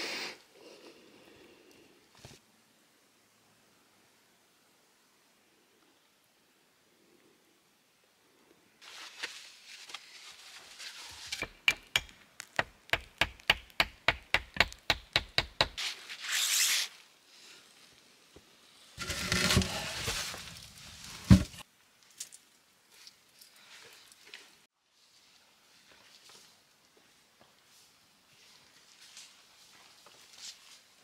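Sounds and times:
rustling and scraping: 0:08.8 - 0:11.6, 0:19.0 - 0:21.6.

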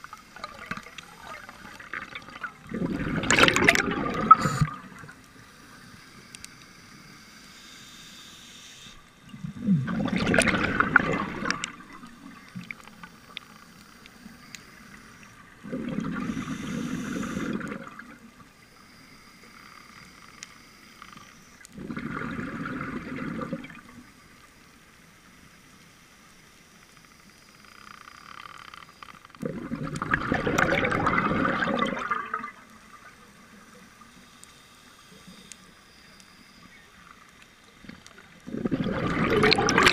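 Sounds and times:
underwater exhaust bubbling: 0:00.0 - 0:05.4, 0:09.1 - 0:13.4, 0:14.0 - 0:18.6, 0:21.6 - 0:24.0, 0:29.4 - 0:34.2, 0:37.8 - 0:39.9
faint hiss: 0:04.2 - 0:22.3, 0:23.5 - 0:29.4, 0:31.7 - 0:38.6.

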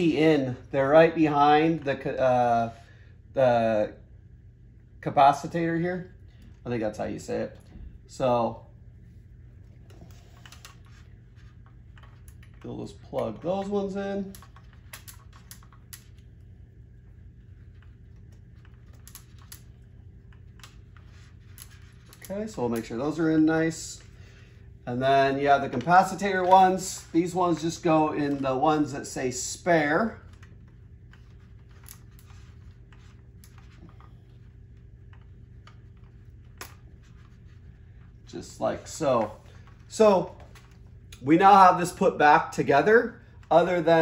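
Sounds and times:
steady low hum: 0:00.0 - 0:44.0
wire connectors clicking onto terminals: 0:11.9 - 0:16.4.

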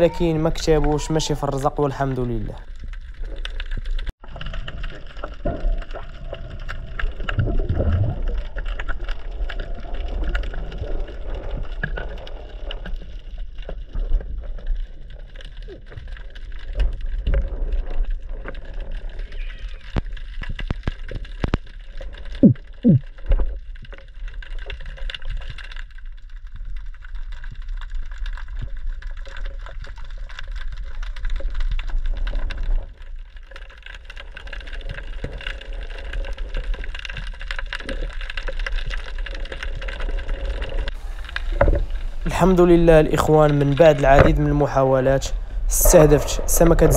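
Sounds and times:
muffled underwater rumble: 0:02.5 - 0:46.9.

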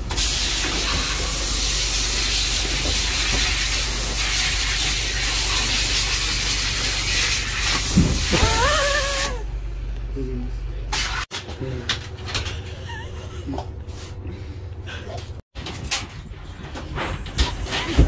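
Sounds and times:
hose sprayer water hissing: 0:00.0 - 0:09.4.

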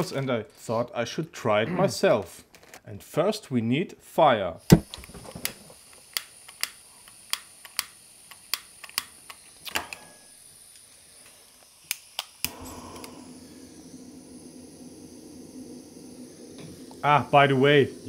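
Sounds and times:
gas burner hissing: 0:04.5 - 0:18.0
lighter clicking: 0:04.7 - 0:13.4.

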